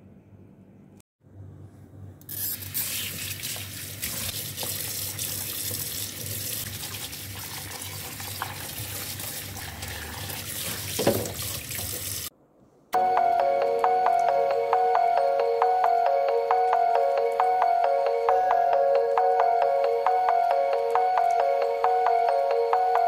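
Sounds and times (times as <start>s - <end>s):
tap water splashing into sink: 3.3s - 12.3s
background music: 13.0s - 23.0s.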